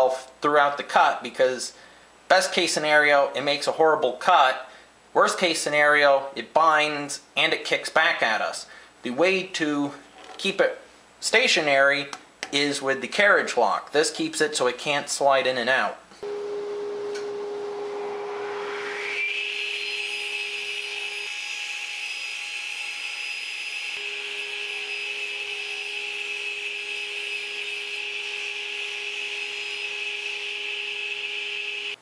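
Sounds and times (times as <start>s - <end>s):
saw motor whine: 16.2s - 32.0s.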